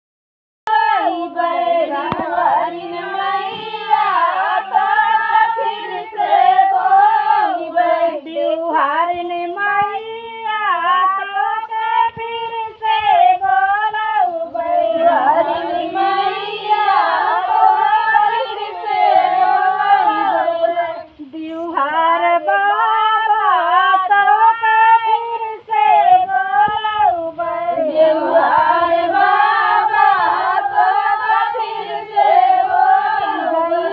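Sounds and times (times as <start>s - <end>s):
women singing together: 0.7s - 33.9s.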